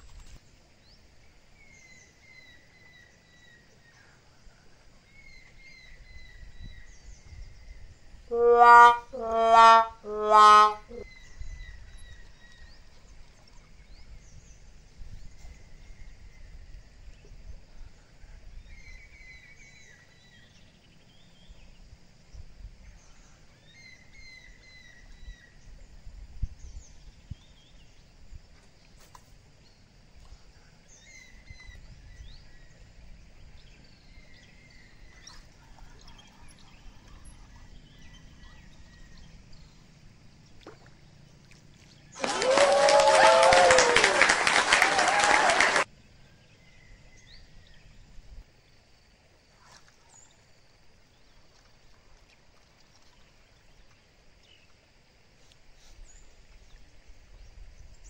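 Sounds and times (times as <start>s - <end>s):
birds chirping: 8.3s - 12.3s.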